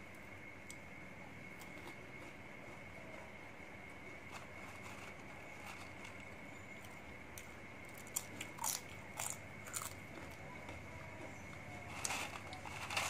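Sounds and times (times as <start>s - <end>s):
chip crunching: 1.5s - 3.3s, 3.9s - 13.0s.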